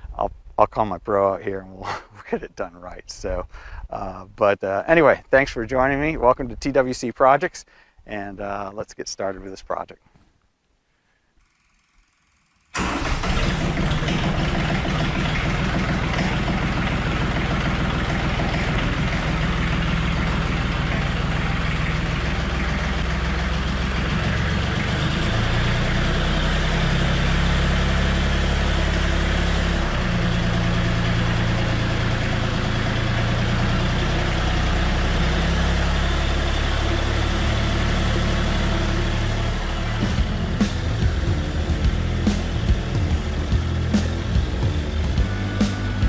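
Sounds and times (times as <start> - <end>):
tractor diesel engine running: 12.7 - 46.0.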